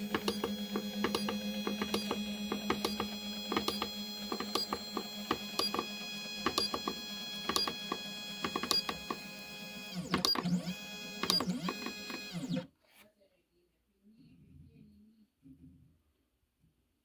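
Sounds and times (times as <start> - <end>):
stepper motors whining: 0.0 - 12.6.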